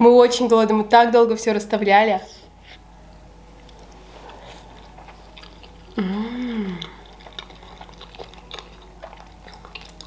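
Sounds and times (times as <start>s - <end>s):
soft chewing: 2.5s - 10.0s
woman humming: 5.8s - 7.1s.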